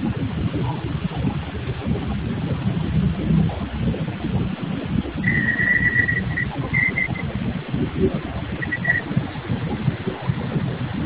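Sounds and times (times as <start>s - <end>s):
high thin tone: 5.2s - 7.2s.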